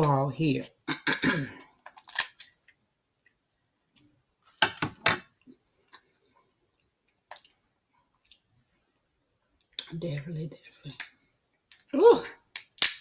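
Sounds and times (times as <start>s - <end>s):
crab shell cracking: 1.9s - 2.6s, 12.5s - 13.0s.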